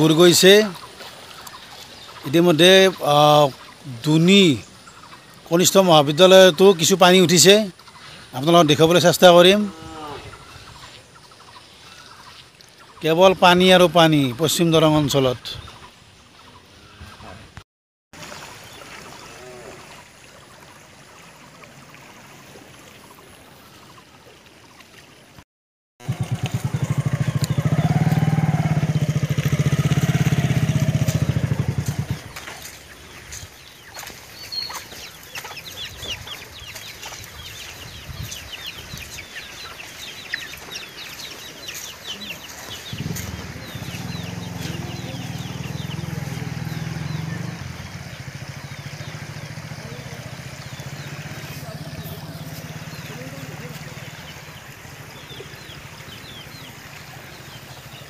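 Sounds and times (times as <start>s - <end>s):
motorcycle engine running: 26.0s - 32.4s, 42.2s - 56.7s
chickens: 30.3s - 47.2s.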